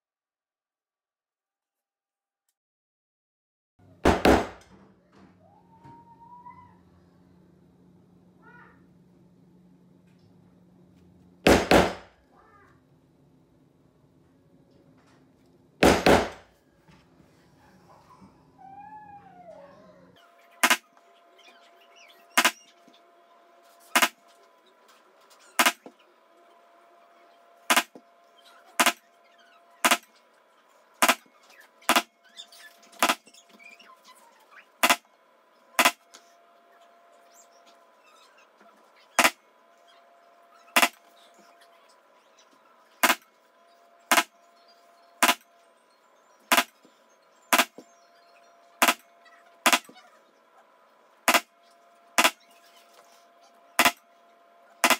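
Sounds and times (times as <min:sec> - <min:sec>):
mallet striking metal stamping tool: 0:15.8 - 0:16.4.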